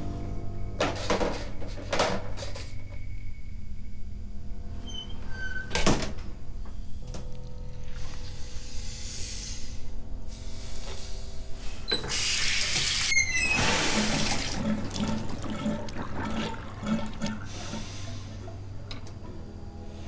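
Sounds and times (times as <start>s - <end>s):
low music drone: 0.0s - 4.8s, 6.4s - 11.9s
tap water running into basin: 13.6s - 17.9s.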